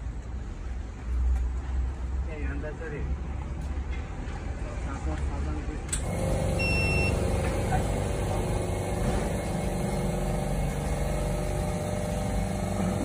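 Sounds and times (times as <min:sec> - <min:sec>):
grinding machine hum: 0:06.0 - 0:13.0.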